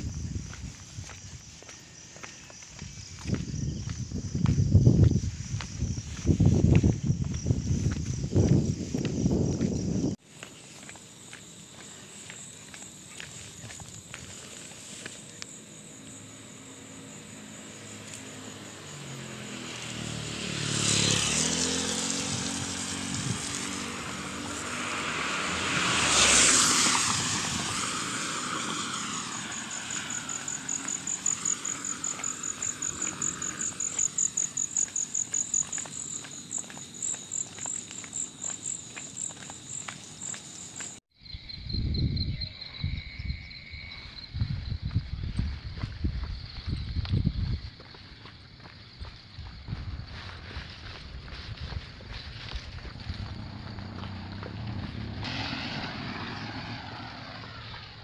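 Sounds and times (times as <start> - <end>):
footsteps on pavement: 0.0 - 15.7, 28.5 - 41.1, 44.3 - 55.2
insects chirring: 0.0 - 58.0
vehicle engine drone: 14.5 - 38.4, 49.0 - 58.0
tyre hiss on wet road: 55.1 - 57.4.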